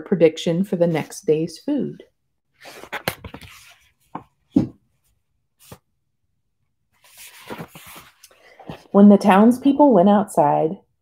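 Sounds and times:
paper pages rustling: 2.6 - 4.4, 5.6 - 5.9, 7.0 - 9.0.

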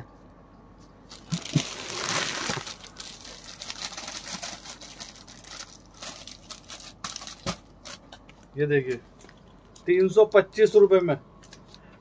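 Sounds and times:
fabric crinkling and rustling: 1.1 - 8.1.

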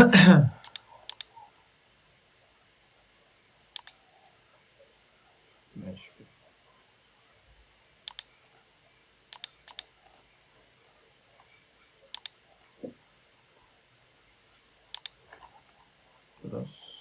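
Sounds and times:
computer mouse clicking: 0.6 - 1.6, 3.7 - 4.4, 8.0 - 8.6, 9.3 - 10.3, 12.1 - 12.7, 14.9 - 15.9.

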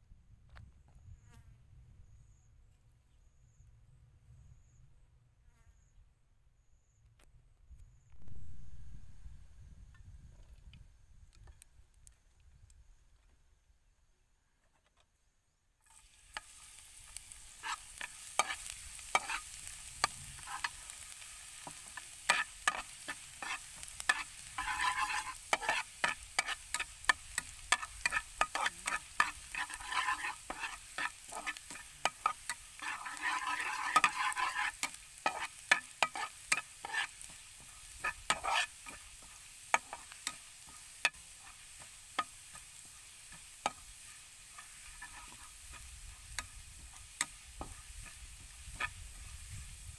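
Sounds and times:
garlic sizzling in oil: 8.2 - 9.8, 15.8 - 49.9
metal spatula scraping pan: 15.9 - 49.7.

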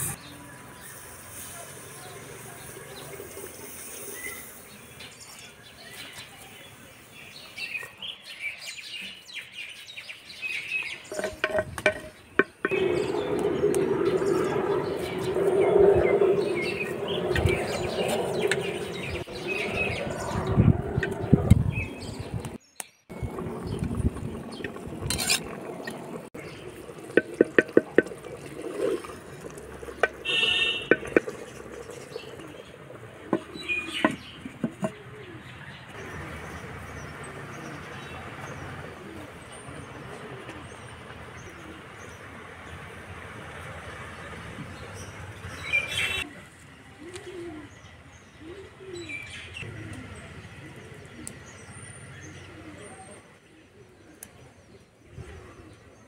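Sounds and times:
metal spoon stirring in clay pot: 11.1 - 12.8, 24.4 - 26.0, 26.6 - 32.4
spoon scraping against clay: 25.1 - 25.5
bird cooing: 34.8 - 35.5, 46.1 - 47.8, 48.4 - 51.4, 52.3 - 54.1.

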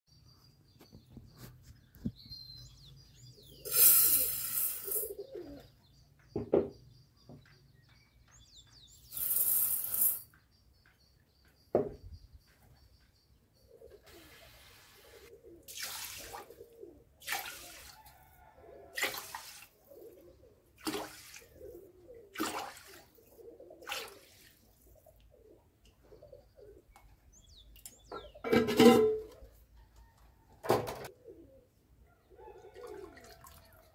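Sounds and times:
birds chirping: 0.1 - 15.6, 24.9 - 28.6
rice being washed in water: 15.7 - 16.6, 17.2 - 18.2, 18.9 - 19.8, 20.8 - 21.6, 22.3 - 24.7.

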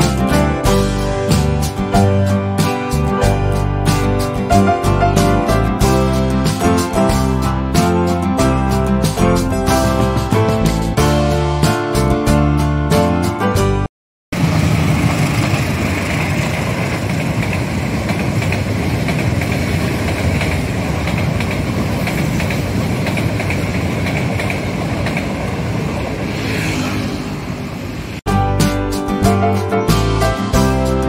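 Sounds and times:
train wheels rumbling on rails: 14.4 - 28.2.

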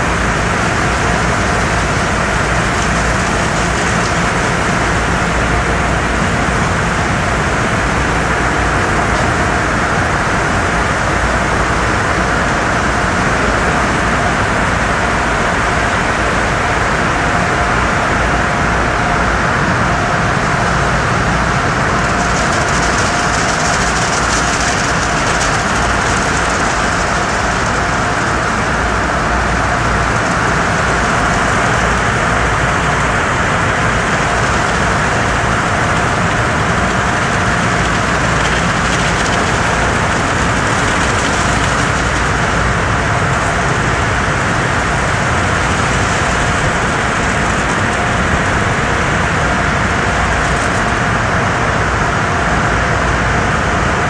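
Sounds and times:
spraying water: 0.0 - 52.8
faint constant hum: 0.0 - 54.0
wash machinery: 0.0 - 54.0.

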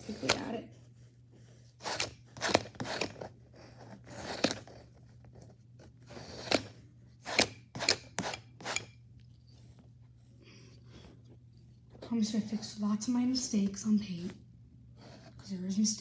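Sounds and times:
palette knife scraping paint: 0.0 - 5.0, 5.8 - 9.0.

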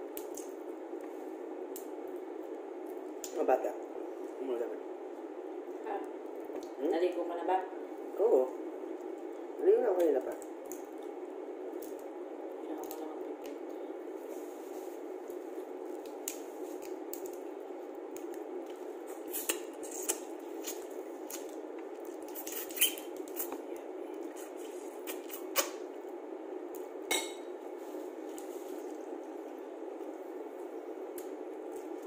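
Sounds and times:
background hum: 0.0 - 32.0
sucking at meat: 19.1 - 20.9.

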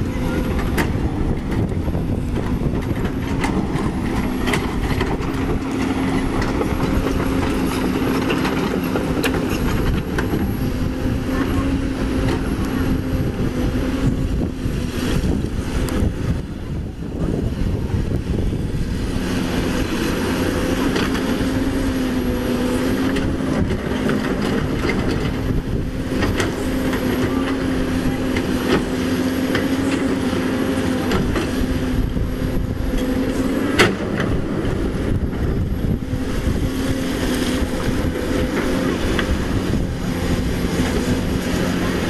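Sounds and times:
excavator diesel engine running: 0.0 - 42.0.

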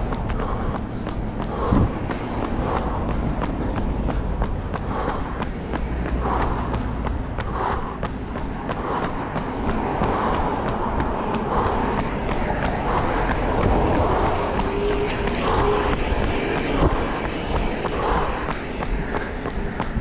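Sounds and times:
runner's footsteps: 0.0 - 20.0
traffic noise: 0.0 - 20.0
wind rumble: 0.0 - 20.0.

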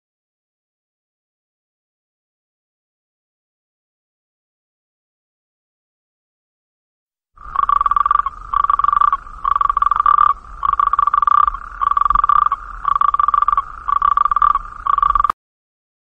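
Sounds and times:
frog pulsed trill: 7.4 - 15.4.

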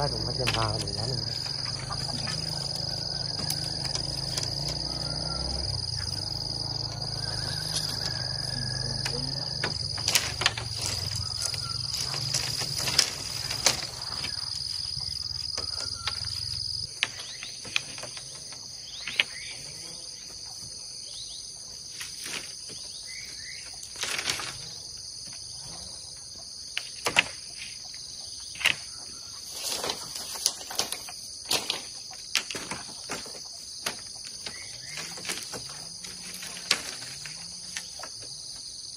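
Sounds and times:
bamboo poles knocking: 0.0 - 4.8, 7.6 - 14.4, 29.8 - 38.2
crickets and insects chirring: 0.0 - 38.9.

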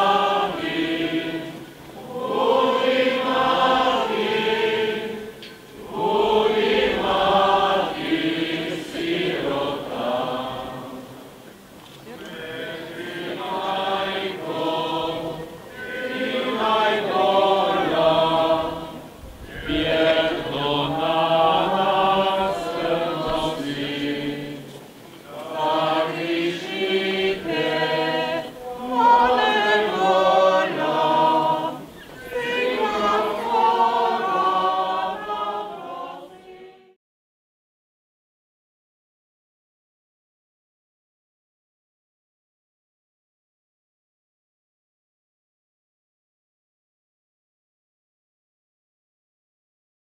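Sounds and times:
crowd singing a hymn: 0.0 - 37.0.

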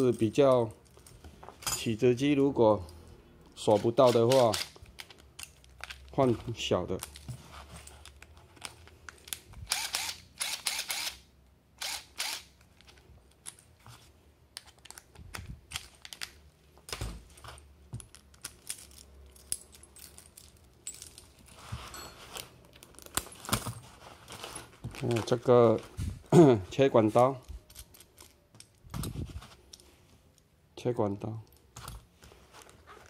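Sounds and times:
metal tools clicking and clinking: 0.0 - 2.0, 2.9 - 6.3, 17.9 - 23.8
tool belt pouches rustling: 3.6 - 10.1, 12.8 - 26.3, 31.7 - 33.0.

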